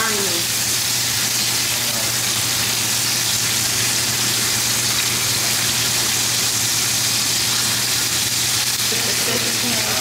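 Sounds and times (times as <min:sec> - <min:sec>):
bacon sizzling in a pan: 0:00.0 - 0:10.0.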